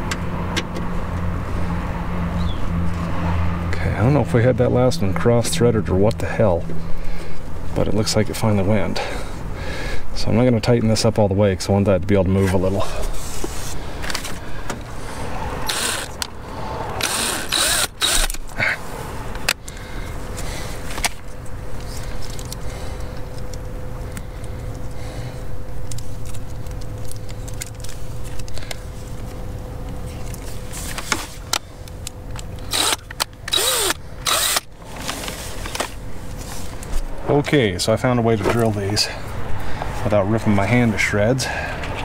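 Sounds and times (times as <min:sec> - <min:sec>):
power drill running: 0:15.7 - 0:16.2, 0:17.0 - 0:18.4, 0:32.7 - 0:34.7.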